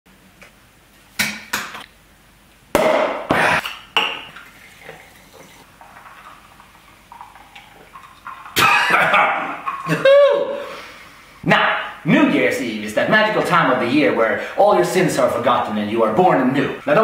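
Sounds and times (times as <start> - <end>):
glass bottles clinking: 3.6 - 10.0
liquid pouring into a glass: 3.8 - 10.0.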